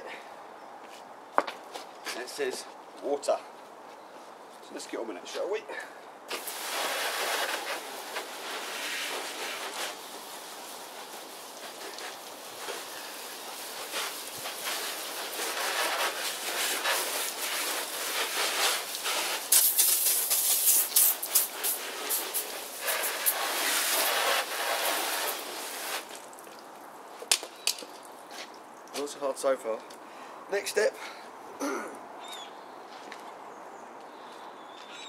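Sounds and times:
hose nozzle spraying water: 0:06.3 - 0:26.6
water spattering on motorcycle: 0:06.3 - 0:28.2.

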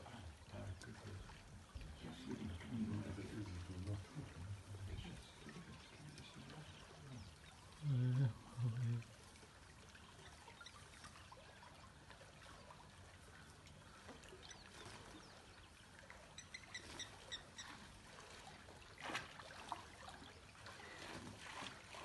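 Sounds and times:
water trickling in pool: 0:00.0 - 0:22.0
water splash: 0:16.0 - 0:22.0.

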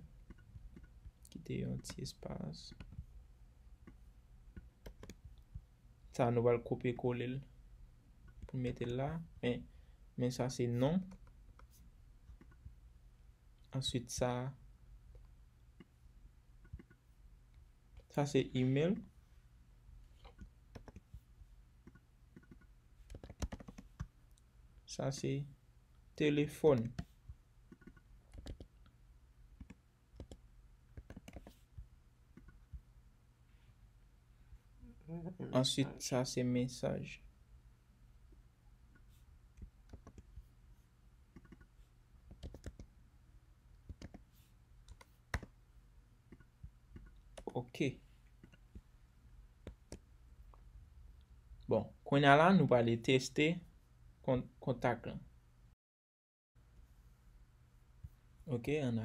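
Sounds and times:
keyboard and mouse clicks: 0:00.1 - 0:03.1, 0:03.8 - 0:05.7, 0:08.2 - 0:09.0, 0:11.0 - 0:12.8, 0:16.6 - 0:17.1, 0:20.2 - 0:21.2, 0:21.8 - 0:24.4, 0:26.7 - 0:27.1, 0:27.7 - 0:29.0, 0:29.6 - 0:30.4, 0:31.0 - 0:31.6, 0:32.3 - 0:32.8, 0:38.9 - 0:40.4, 0:41.3 - 0:42.9, 0:43.8 - 0:45.6, 0:46.3 - 0:47.6, 0:48.3 - 0:48.8, 0:49.6 - 0:50.6
computer keyboard keystrokes: 0:04.6 - 0:05.2, 0:20.3 - 0:21.1, 0:21.8 - 0:24.1, 0:27.7 - 0:28.7, 0:29.6 - 0:30.4, 0:31.0 - 0:31.6, 0:39.9 - 0:40.3, 0:41.4 - 0:41.7, 0:42.3 - 0:42.9, 0:43.9 - 0:44.2.

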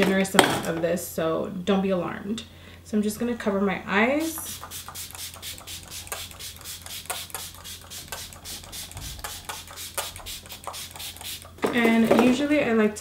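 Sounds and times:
spray pump hissing: 0:04.2 - 0:11.6.

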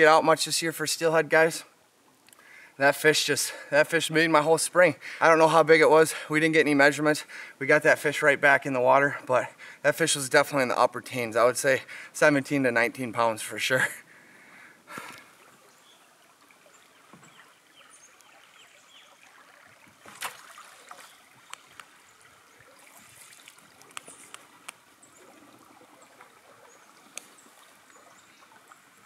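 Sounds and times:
river water trickling and lapping: 0:00.0 - 0:29.0
small clicks and ticks: 0:23.8 - 0:24.8, 0:27.1 - 0:27.4.

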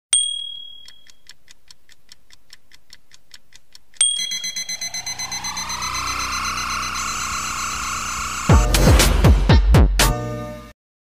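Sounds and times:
bell-like ding: 0:00.2 - 0:01.0, 0:04.0 - 0:07.3
rapid clock ticking: 0:00.8 - 0:08.8
tone rising in pitch: 0:04.2 - 0:09.3.

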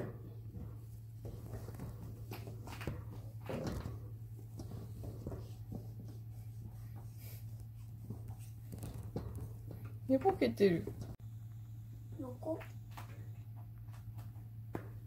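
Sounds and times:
faint rustles and clicks: 0:00.0 - 0:14.6.

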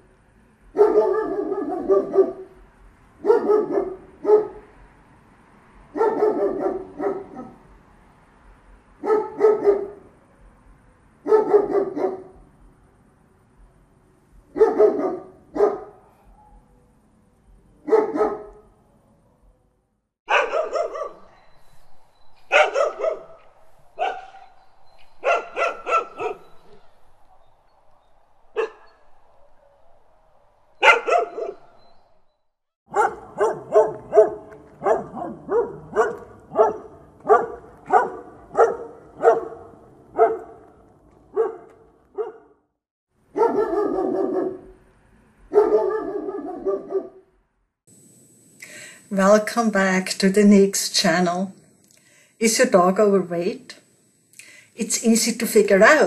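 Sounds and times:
dog barking: 0:00.7 - 0:02.6, 0:03.2 - 0:04.7, 0:05.9 - 0:07.6, 0:09.0 - 0:10.1, 0:11.2 - 0:12.4, 0:14.5 - 0:16.8, 0:17.8 - 0:18.7, 0:20.3 - 0:21.4, 0:22.5 - 0:23.4, 0:24.0 - 0:24.5, 0:25.2 - 0:26.5, 0:28.6 - 0:28.9, 0:30.8 - 0:31.7, 0:32.9 - 0:42.6, 0:43.3 - 0:44.8, 0:45.5 - 0:47.2.

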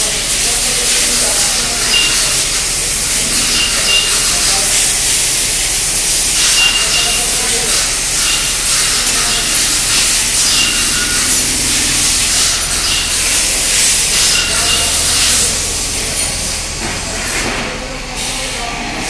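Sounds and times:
shop machinery hissing: 0:00.0 - 0:19.0
low hum: 0:08.2 - 0:17.2.

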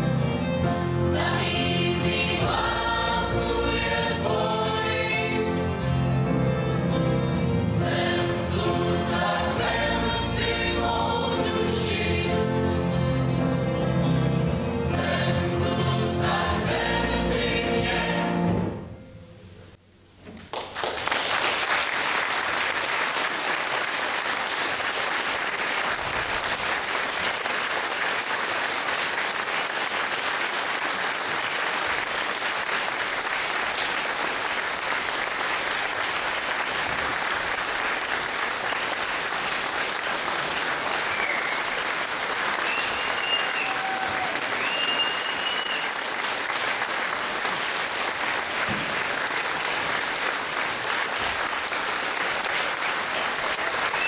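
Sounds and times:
choir singing: 0:00.6 - 0:05.9, 0:07.5 - 0:13.3, 0:14.6 - 0:18.8
audience applauding: 0:20.4 - 0:54.0
high-pitched whistles: 0:41.1 - 0:41.7, 0:42.6 - 0:45.9.

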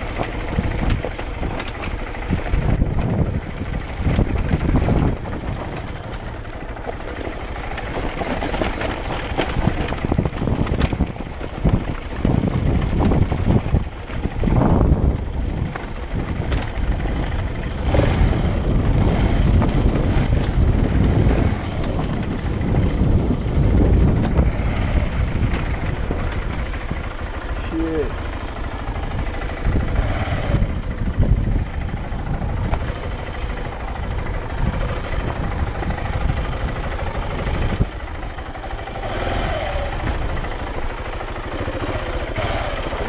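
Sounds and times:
bike knocks and rattles: 0:00.0 - 0:14.7, 0:18.8 - 0:27.7, 0:31.2 - 0:38.5
motorcycle engine running: 0:00.0 - 0:43.0.

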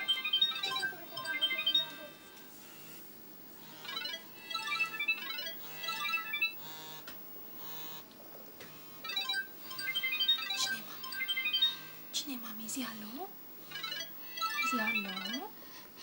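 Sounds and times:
phone ringtone beeping melody: 0:00.0 - 0:02.4, 0:03.7 - 0:06.6, 0:09.0 - 0:12.0, 0:13.7 - 0:15.6.

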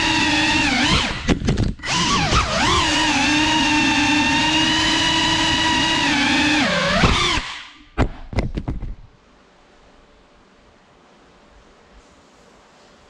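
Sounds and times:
drone motors whining: 0:00.0 - 0:07.8.

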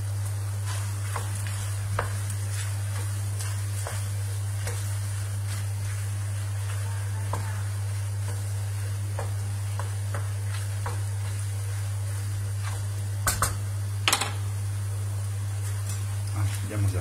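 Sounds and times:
wooden spoon scraping pan: 0:00.6 - 0:13.0.

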